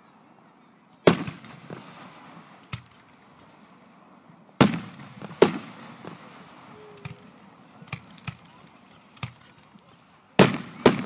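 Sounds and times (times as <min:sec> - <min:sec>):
fireworks booming: 0:01.1 - 0:03.2, 0:04.6 - 0:09.8, 0:10.4 - 0:11.0
faint fireworks pops: 0:04.6 - 0:11.0.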